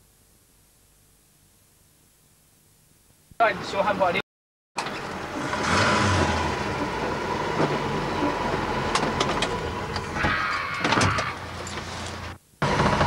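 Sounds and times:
car engine and road noise: 4.8s - 13.0s.

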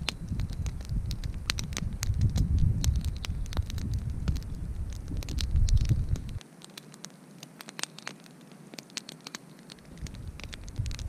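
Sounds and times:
wind rumble on microphone: 0.0s - 6.4s, 9.8s - 11.0s
campfire crackling and popping: 0.0s - 11.0s.

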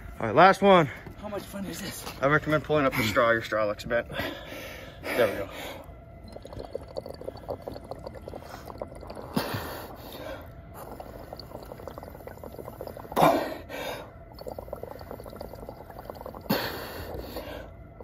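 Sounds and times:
bubbling through a straw: 5.7s - 17.7s.

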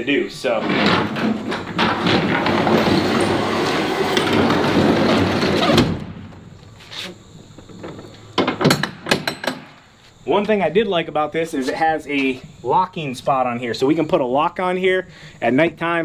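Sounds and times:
roll-up door rattling: 0.6s - 6.2s
door shutting with a thump: 4.0s - 6.5s.

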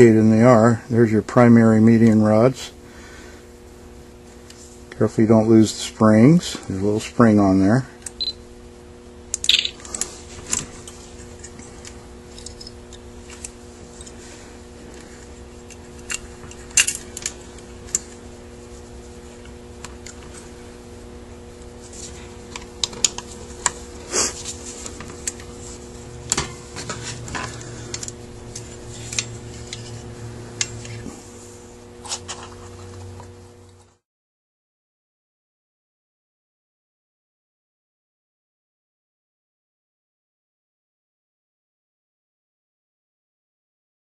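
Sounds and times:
steady low hum: 0.0s - 34.0s
metal parts clicking and clinking: 12.3s - 12.7s, 16.0s - 17.3s.

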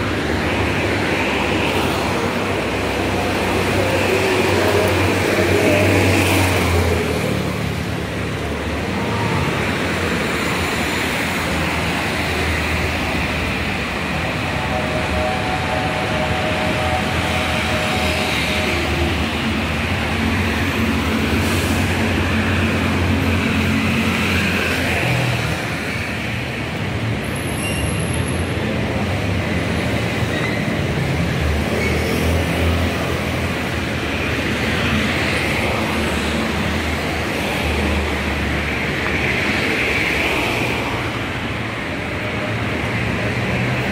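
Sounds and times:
cars driving past on wet road: 0.0s - 30.2s
low traffic hum: 0.0s - 43.9s.

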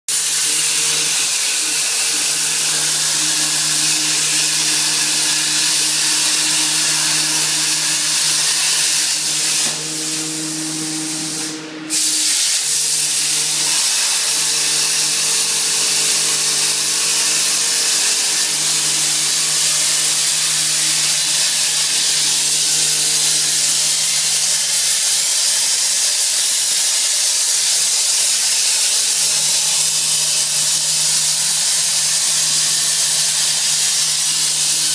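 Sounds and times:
plasma torch hissing: 0.1s - 34.9s
low hum: 0.4s - 21.2s.

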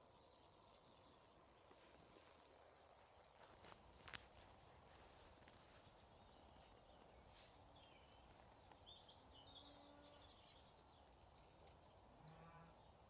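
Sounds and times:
faint outdoor background noise: 0.0s - 13.0s
bird chirping: 4.9s - 13.0s.

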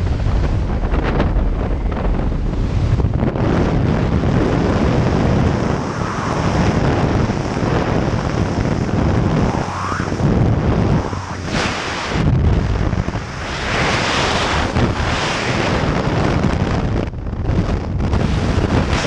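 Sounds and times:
plane engine running: 0.0s - 19.0s
wind buffeting microphone: 0.0s - 19.0s.

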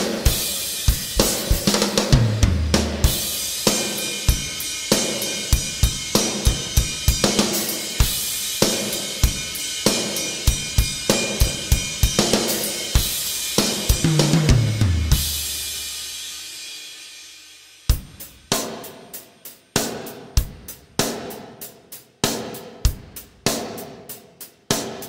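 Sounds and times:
tom drum fill: 0.0s - 4.5s, 13.0s - 16.0s
hi-hat and cymbals: 0.0s - 25.0s
snare drum backbeat: 1.2s - 3.8s, 13.6s - 15.8s.

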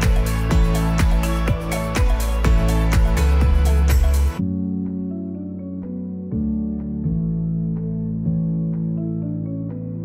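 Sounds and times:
loud music with steady beat: 0.0s - 5.0s.

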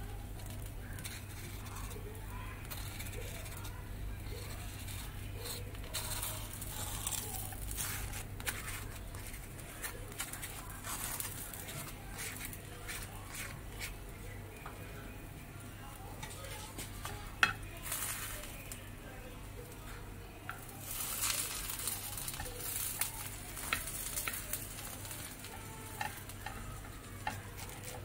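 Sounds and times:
sandwich sizzling on griddle: 0.0s - 14.6s, 15.8s - 18.8s, 19.5s - 28.0s
knife scraping and tapping griddle: 4.3s - 14.0s, 16.2s - 18.6s, 20.4s - 28.0s.

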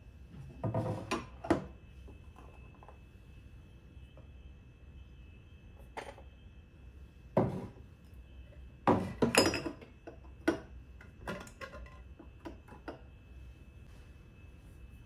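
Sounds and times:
glass jars clinking on wood: 8.9s - 9.9s.

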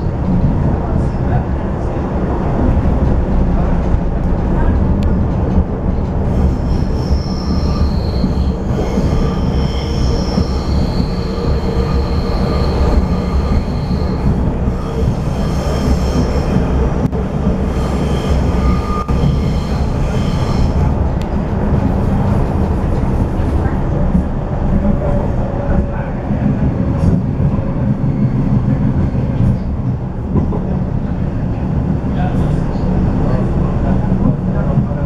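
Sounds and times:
train wheels rumbling on rails: 0.0s - 35.0s
wheel squeal: 6.3s - 16.5s, 17.8s - 20.8s.

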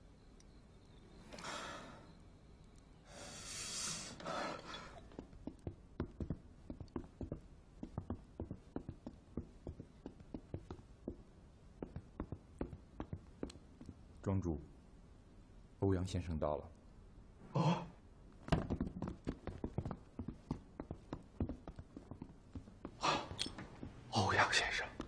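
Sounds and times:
person breathing out heavily: 3.1s - 5.0s
light irregular taps: 5.0s - 14.3s, 18.5s - 25.0s.

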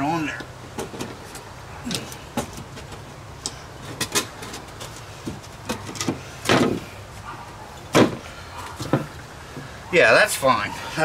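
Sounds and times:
wood knocking and scraping metal: 0.3s - 7.0s, 7.8s - 9.7s.

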